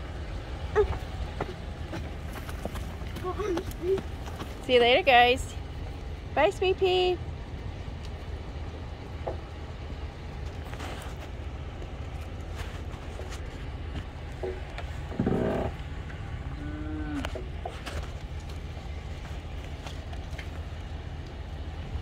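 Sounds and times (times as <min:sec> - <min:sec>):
steady low rumble: 0:00.0 - 0:22.0
calf mooing: 0:16.5 - 0:17.4.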